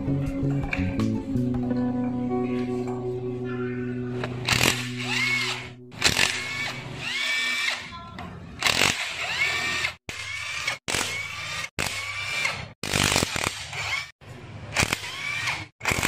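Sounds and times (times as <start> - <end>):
cordless drill whirring: 4.4 - 7.9, 8.6 - 14.1, 14.7 - 16.0.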